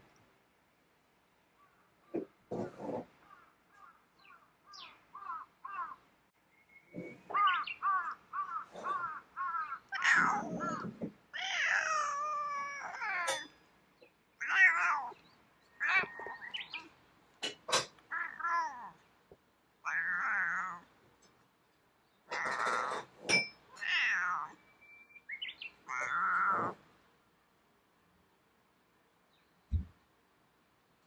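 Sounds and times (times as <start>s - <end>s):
cat meowing: 7.3s - 13.5s, 14.4s - 15.2s, 15.8s - 16.6s, 18.1s - 19.0s, 19.8s - 20.9s, 22.3s - 23.1s, 23.7s - 24.6s, 25.8s - 26.8s.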